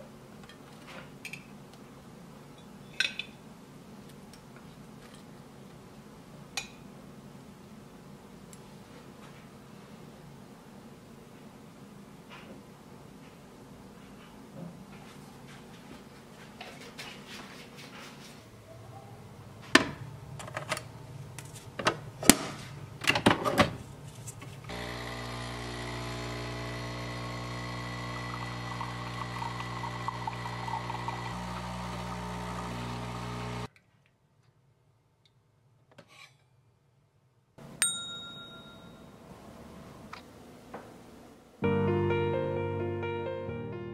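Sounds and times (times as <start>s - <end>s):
espresso machine pump humming: 24.7s - 33.7s
ringing clink: 37.8s - 39.1s.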